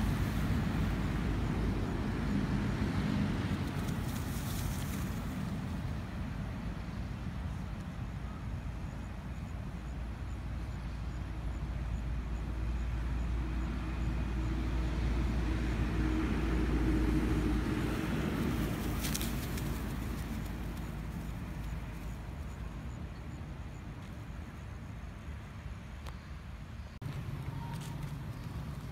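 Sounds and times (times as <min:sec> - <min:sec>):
vehicle engine rumble passing: 0:00.0 - 0:07.7, 0:09.7 - 0:25.8, 0:26.5 - 0:28.9.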